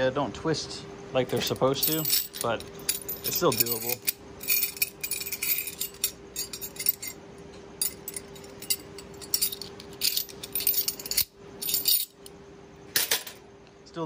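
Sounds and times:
metal chain and rings clinking: 0:01.3 - 0:07.2, 0:07.8 - 0:12.3.

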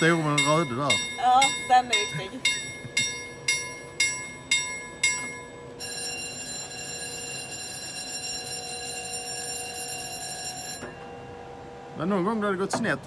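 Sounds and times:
warning bell ringing: 0:00.0 - 0:12.4
faint constant hum: 0:00.0 - 0:13.0.

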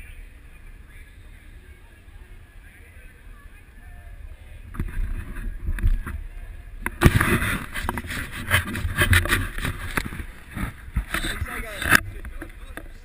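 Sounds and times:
wind on microphone: 0:04.0 - 0:13.0
rustling: 0:04.7 - 0:13.0.

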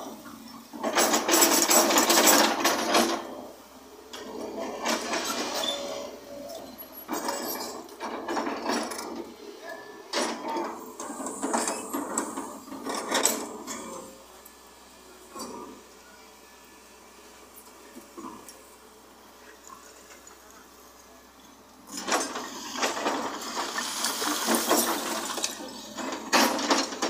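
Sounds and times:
excavator bucket scraping rubble: 0:00.3 - 0:03.5, 0:04.2 - 0:09.4, 0:10.1 - 0:14.2, 0:21.9 - 0:27.0.

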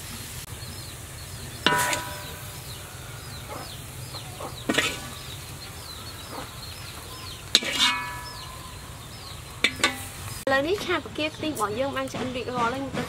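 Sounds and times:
chickens cheeping: 0:00.4 - 0:10.5
spoon clinking on metal platter: 0:01.6 - 0:02.5, 0:09.6 - 0:10.2.

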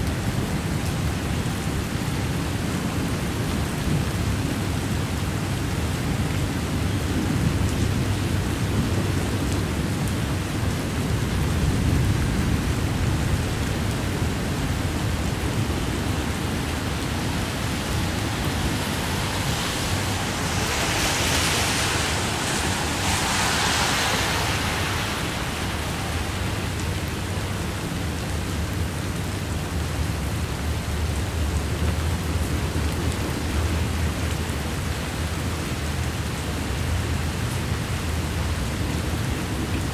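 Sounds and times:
heavy rain falling: 0:00.0 - 0:39.9
freight train rumble: 0:14.6 - 0:29.6.

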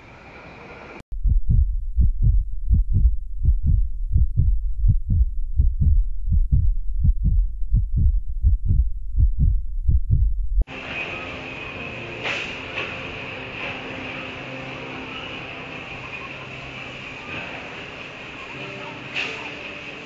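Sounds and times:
rapid heartbeat thumps: 0:01.1 - 0:10.7.

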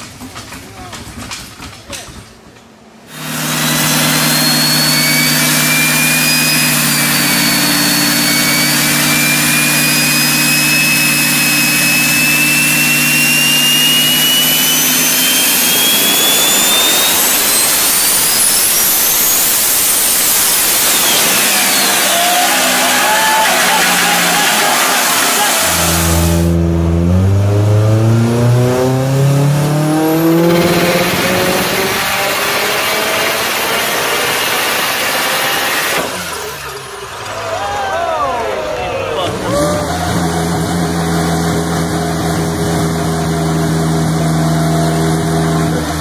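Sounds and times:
diesel engine at full load: 0:00.0 - 0:46.0
turbocharger whine: 0:03.0 - 0:37.5, 0:38.2 - 0:46.0.

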